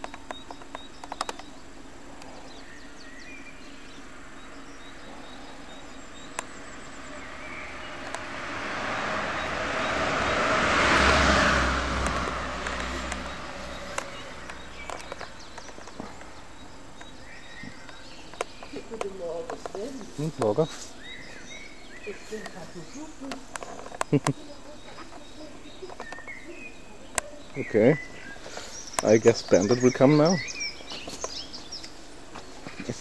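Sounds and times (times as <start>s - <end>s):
car passing: 6.4s - 15.4s
faint bird chirps: 12.9s - 33.0s.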